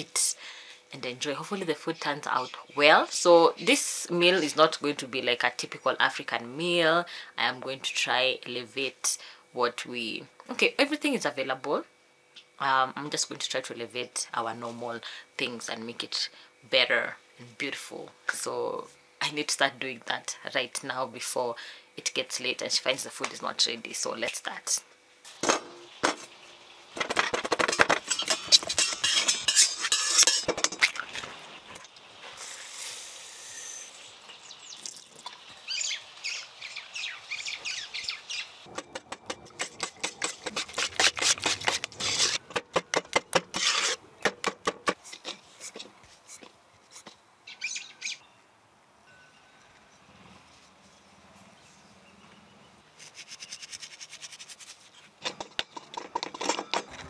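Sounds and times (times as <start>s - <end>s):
kitchen scrapes and clinks: 27.0s - 31.0s, 38.8s - 42.4s.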